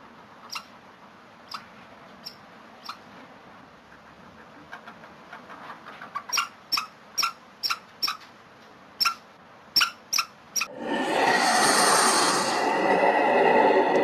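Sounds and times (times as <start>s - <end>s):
small animal chirping: 0.4s - 0.7s, 1.5s - 3.1s, 4.7s - 8.3s, 9.0s - 10.7s.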